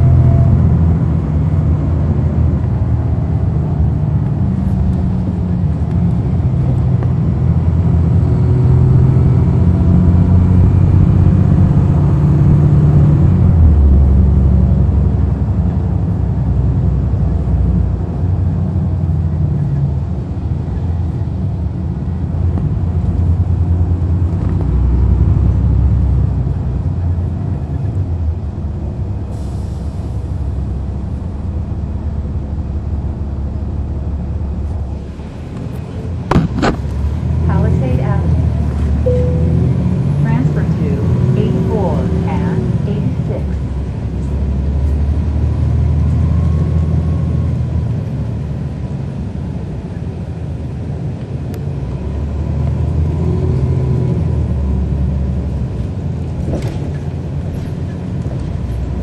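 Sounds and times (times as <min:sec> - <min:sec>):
bus diesel engine running: 0:00.0 - 0:59.0.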